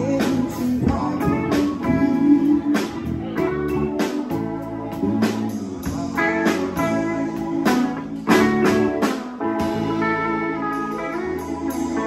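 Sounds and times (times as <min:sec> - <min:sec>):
live blues band music: 0:00.0 - 0:12.0.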